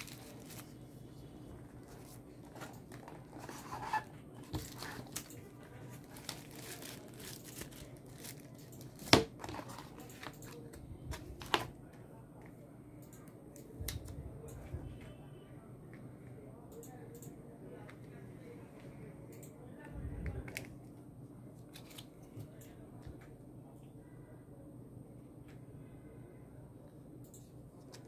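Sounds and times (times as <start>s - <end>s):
paper rustling and crinkling: 0.0s - 0.9s, 1.6s - 10.3s.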